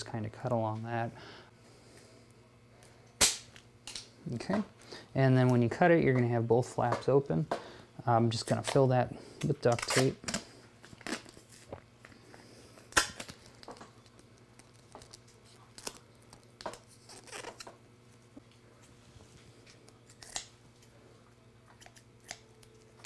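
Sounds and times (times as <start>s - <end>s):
tape crinkling: 9.5s - 19.0s
duct tape ripping: 9.7s - 11.7s, 12.9s - 17.8s, 20.0s - 20.5s.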